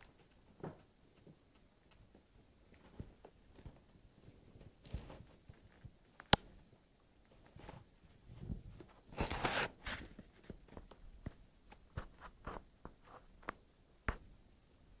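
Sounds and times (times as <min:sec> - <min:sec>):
light clicks and taps: 0:00.0 - 0:03.9.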